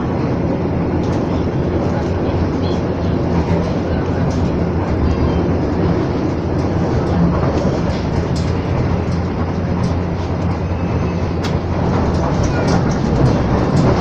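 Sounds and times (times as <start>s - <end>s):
train running rumble: 0.0s - 14.0s.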